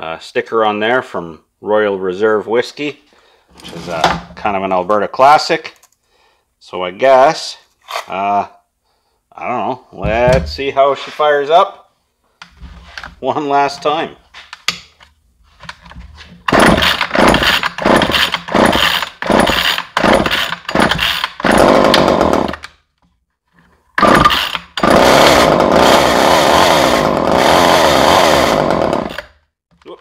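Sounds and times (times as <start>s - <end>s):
chainsaw sputtering and running: 16.4s - 22.8s, 24.0s - 29.4s.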